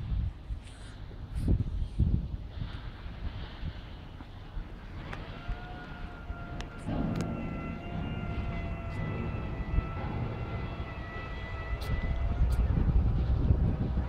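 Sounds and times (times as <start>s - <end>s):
low rush: 3.7s - 14.0s
fan whine: 4.9s - 14.0s.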